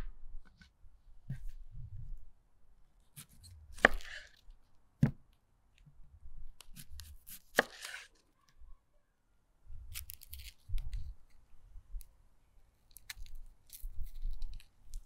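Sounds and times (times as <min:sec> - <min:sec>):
knife chopping onion on wooden board: 0:03.2 - 0:04.2, 0:06.6 - 0:08.0.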